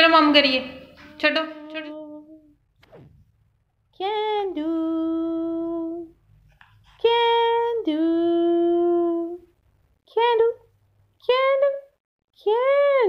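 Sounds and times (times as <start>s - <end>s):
person singing long notes: 0.9s - 2.6s, 4.0s - 6.2s, 7.1s - 9.5s.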